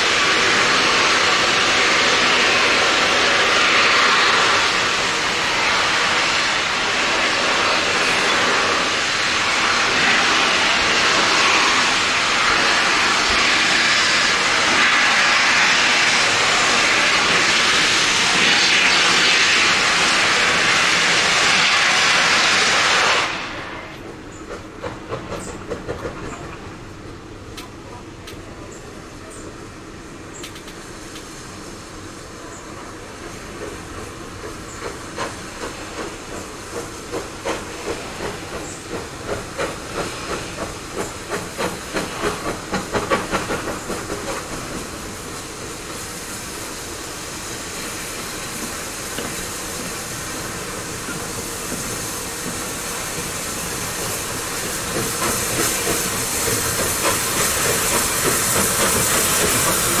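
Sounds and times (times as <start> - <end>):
steam hissing: 0.0 - 27.4, 28.4 - 60.0
steam train rhythmic beats: 33.5 - 60.0.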